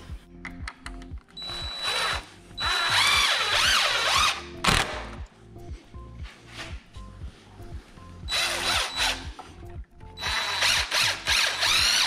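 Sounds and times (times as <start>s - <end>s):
background music: 0.0s - 12.0s
power driver running screws: 10.2s - 12.0s.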